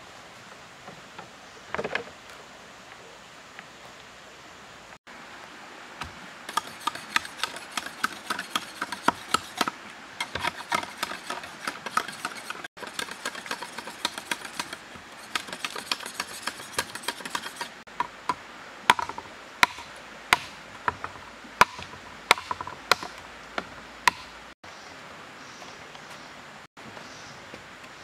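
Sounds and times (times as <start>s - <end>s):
knife chopping bamboo: 6.5s - 17.8s, 18.9s - 23.2s, 24.1s - 24.3s.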